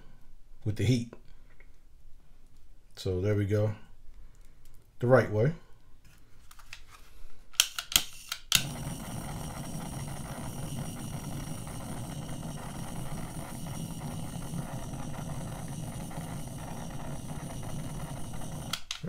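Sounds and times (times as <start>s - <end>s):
jet-flame torch hissing: 8.5s - 19.0s.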